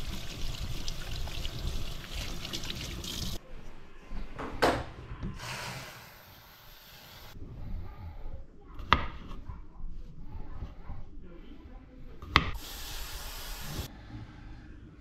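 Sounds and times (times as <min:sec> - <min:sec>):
faucet running into steel sink: 0:00.0 - 0:03.4
potatoes being rinsed: 0:00.0 - 0:03.4.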